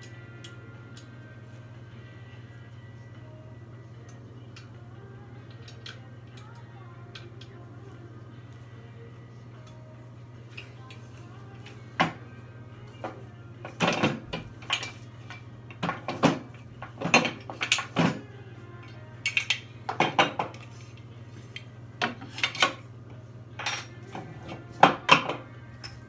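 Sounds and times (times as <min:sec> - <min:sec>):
metal stand parts clanking: 0:13.7 - 0:18.2, 0:19.2 - 0:20.7, 0:21.4 - 0:22.8, 0:23.6 - 0:24.2.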